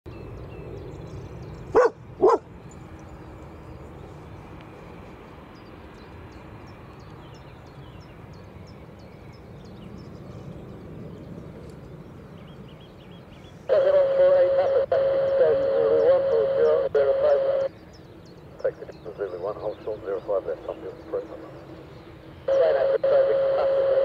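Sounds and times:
jet airliner rumbling on runway: 0.1s - 17.7s, 18.4s - 24.0s
dog barking: 1.7s - 2.5s.

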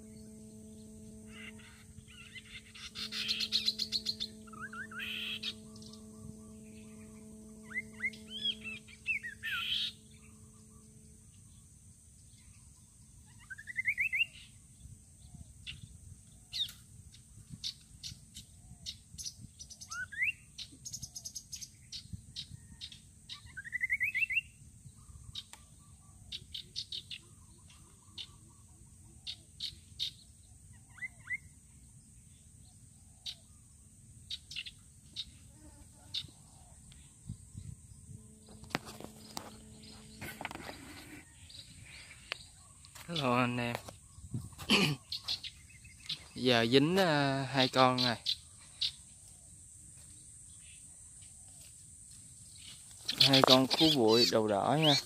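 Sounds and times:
steady low hum: 0.0s - 19.7s, 26.8s - 55.0s
birds chirping and trilling: 0.0s - 55.0s.

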